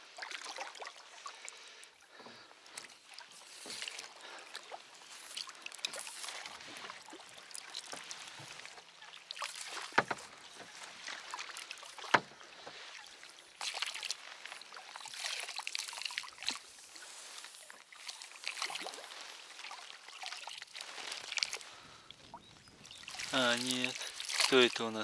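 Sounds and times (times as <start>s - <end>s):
water splashing and dripping from paddles: 0.0s - 25.0s
sharp knocks: 9.9s - 10.3s.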